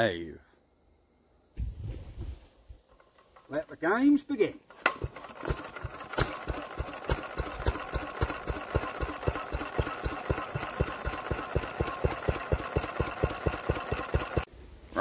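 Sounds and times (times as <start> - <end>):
stationary engine chuffing: 4.9 - 14.5.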